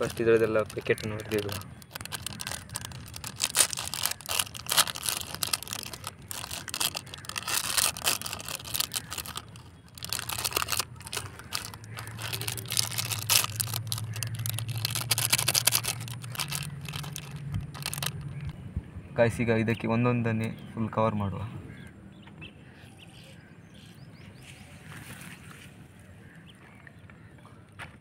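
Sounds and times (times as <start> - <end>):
rubber bands shaken out: 0.0 - 18.3
plastic packets crinkling and tearing: 0.0 - 18.5.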